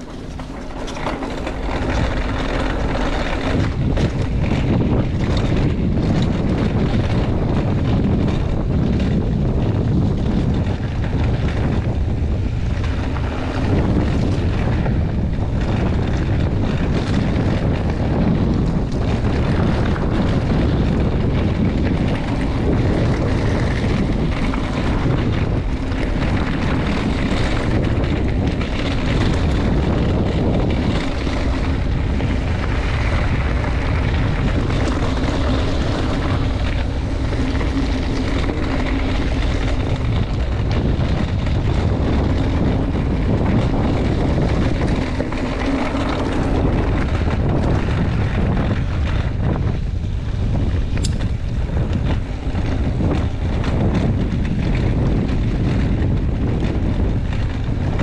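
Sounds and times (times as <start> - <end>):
small knocks and rattles: 0.0 - 9.1
bike rumbling on dirt trail: 0.0 - 58.0
wind buffeting microphone: 0.0 - 58.0.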